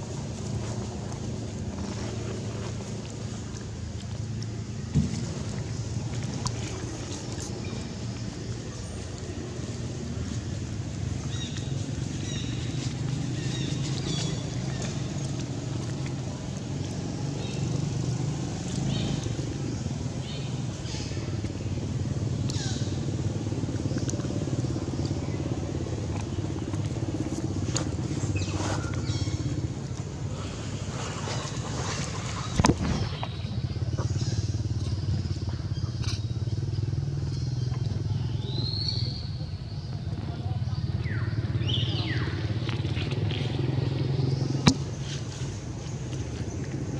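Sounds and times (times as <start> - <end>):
engine humming: 0.0 - 46.9.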